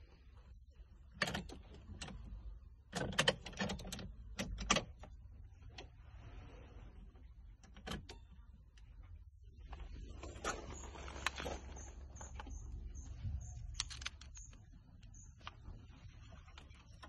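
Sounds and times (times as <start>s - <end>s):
clicks of plastic parts handled: 13.4s - 15.6s.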